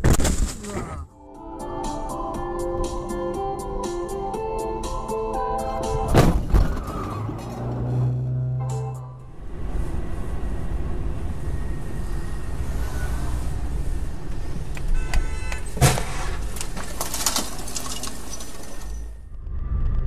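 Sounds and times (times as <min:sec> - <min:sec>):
car driving on wet road: 0:09.4 - 0:14.9.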